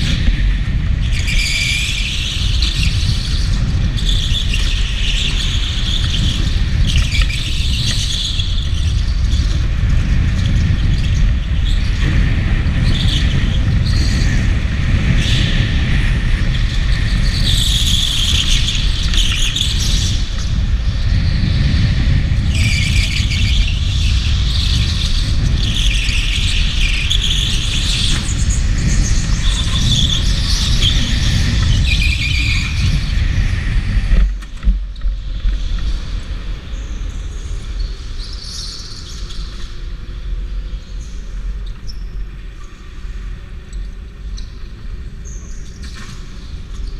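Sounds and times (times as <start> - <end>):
go-kart tyres squealing: 0.0 - 34.0
kart rolling rumble: 0.0 - 46.9.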